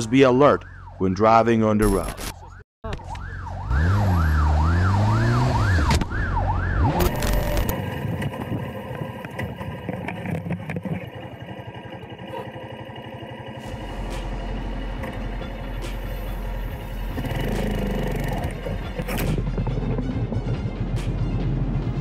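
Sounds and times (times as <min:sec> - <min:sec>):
ambulance siren yelping: 0:00.0 - 0:07.9
motorcycle engine running: 0:07.1 - 0:20.4.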